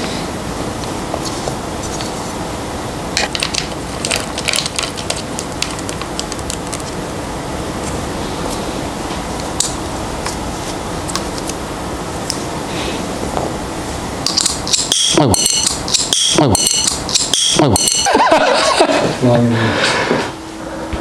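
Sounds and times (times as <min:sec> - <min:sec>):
small metal parts clicking: 0:14.3 - 0:18.1.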